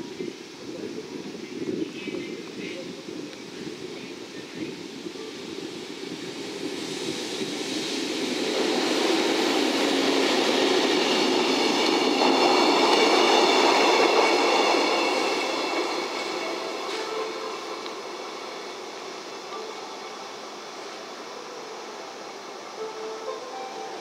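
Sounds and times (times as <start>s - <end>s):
train wheels clattering on rails: 5.9s - 19.8s.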